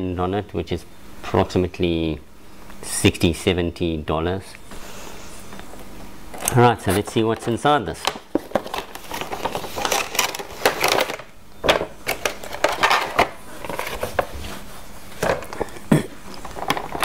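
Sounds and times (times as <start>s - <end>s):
cardboard rustling and scraping: 8.3s - 11.2s, 12.3s - 15.7s.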